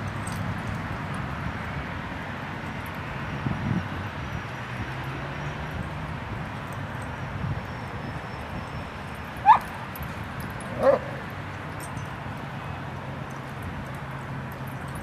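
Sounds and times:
dog yipping: 9.4s - 9.7s, 10.7s - 11.2s.

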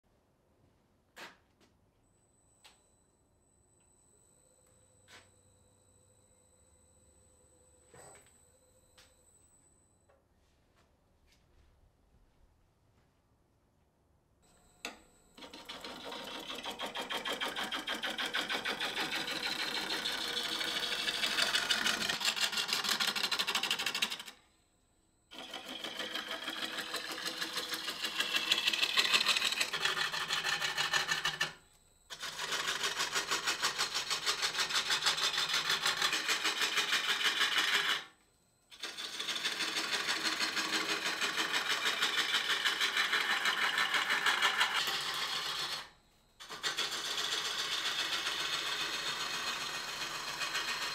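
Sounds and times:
lathe gouge ticking chatter: 14.8s - 24.4s, 25.3s - 38.1s, 38.8s - 50.9s.

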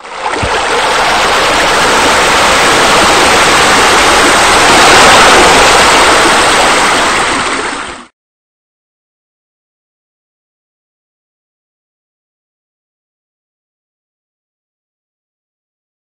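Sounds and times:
water falling and splashing: 0.0s - 8.0s.

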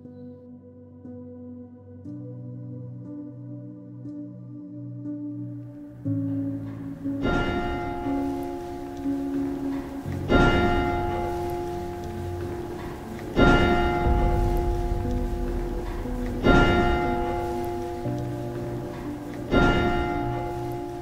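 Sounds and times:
music: 0.0s - 21.0s
church bell tolling: 6.6s - 21.0s.

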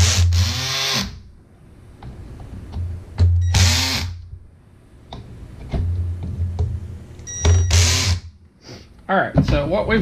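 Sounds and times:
cordless drill driving screws: 0.0s - 1.2s, 3.5s - 4.2s, 7.6s - 8.2s.

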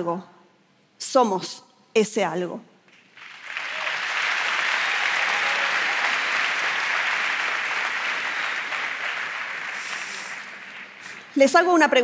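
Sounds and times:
audience applauding: 2.9s - 11.7s.

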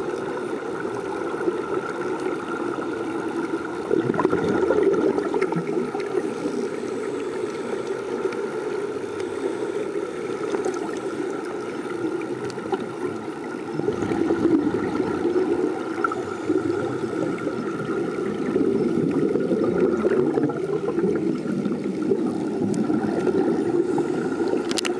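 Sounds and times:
faint steady hum: 0.0s - 24.9s
muffled underwater rumbling wash: 0.0s - 24.9s
gurgling air bubbles: 3.7s - 6.4s, 12.0s - 24.9s
small scattered clicks: 24.4s - 24.9s.

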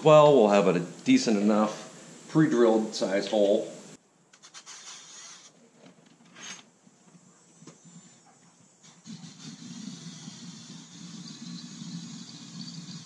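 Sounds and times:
drill boring into metal: 9.0s - 13.0s.

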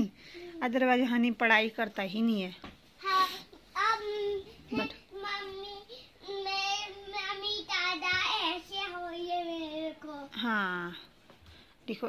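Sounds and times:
young child singing: 3.0s - 10.3s.

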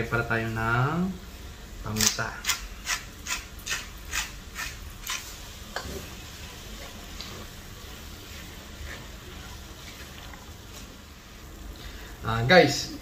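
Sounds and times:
pepper mill grinding: 2.0s - 5.3s
spatula stirring food in a pot: 2.1s - 11.4s.

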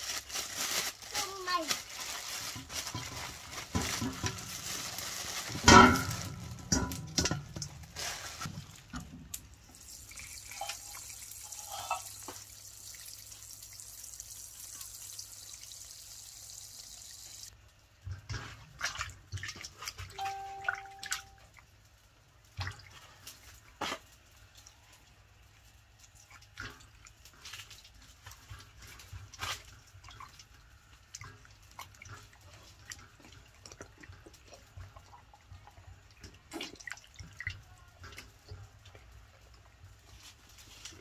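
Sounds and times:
plastic bag rustling: 0.0s - 8.8s
water trickling into steel bowl: 2.1s - 9.0s, 9.7s - 17.5s, 18.8s - 21.7s
water splashes: 26.1s - 38.3s.

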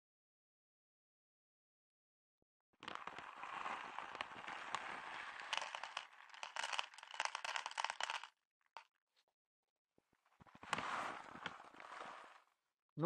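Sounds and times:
kibble rattling into plastic bowl: 2.8s - 8.3s
plastic bag crinkling: 2.8s - 8.3s.

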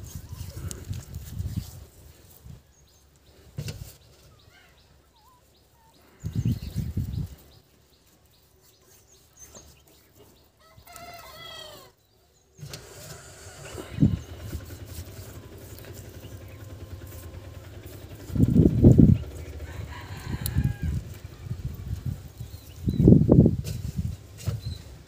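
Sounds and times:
steady low rumble: 4.8s - 8.1s, 13.6s - 24.1s
rooster crowing: 10.6s - 12.0s, 19.6s - 21.2s.

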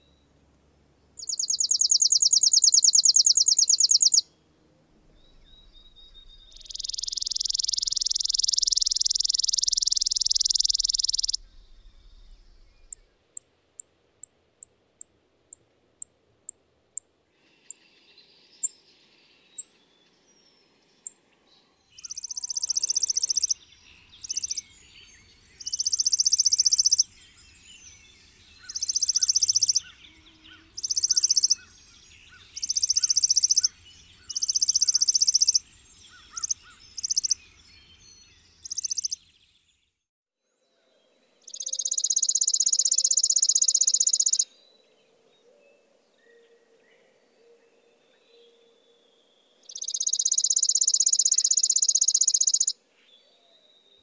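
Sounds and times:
sharp bird chip notes: 1.2s - 4.2s, 5.2s - 13.1s
sparrow trilling: 1.2s - 4.3s, 5.1s - 13.1s, 21.9s - 39.4s, 41.4s - 44.5s, 49.6s - 53.6s.

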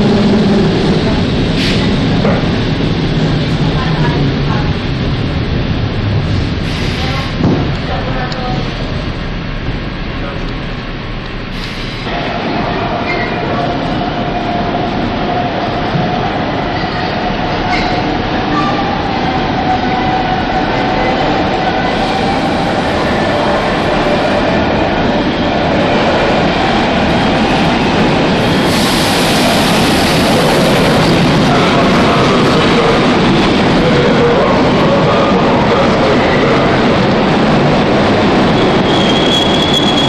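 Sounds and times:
electric train rumble: 0.0s - 40.0s
wheels hissing and squealing: 28.4s - 30.4s.

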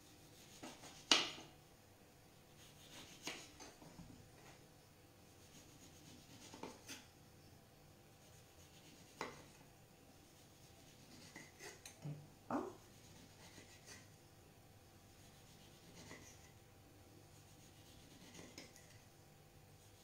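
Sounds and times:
knife scraping on cutting board: 2.6s - 3.8s, 5.5s - 7.1s, 10.3s - 12.0s, 15.6s - 16.5s, 17.8s - 19.0s.

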